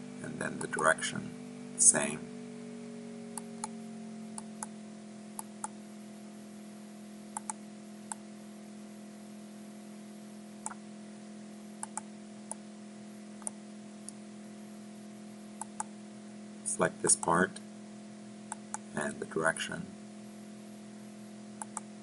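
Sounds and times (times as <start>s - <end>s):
steady low hum: 0.0s - 22.0s
computer mouse button clicking: 7.4s - 8.2s, 11.8s - 12.6s, 15.6s - 15.9s, 21.6s - 21.9s.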